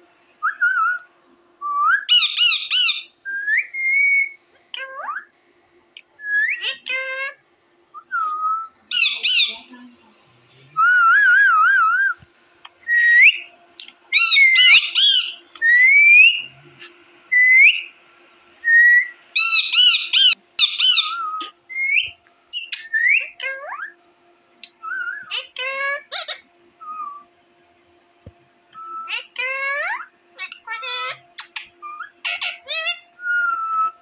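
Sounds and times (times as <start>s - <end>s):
parakeets whistling: 1.7s - 5.3s, 6.0s - 7.4s, 8.0s - 9.9s, 10.8s - 18.0s, 18.6s - 24.0s, 24.6s - 27.3s, 28.7s - 34.0s
harsh parakeet screeches: 2.1s - 3.1s, 8.9s - 9.6s, 14.2s - 17.8s, 19.4s - 22.0s, 25.2s - 26.5s, 29.1s - 33.2s.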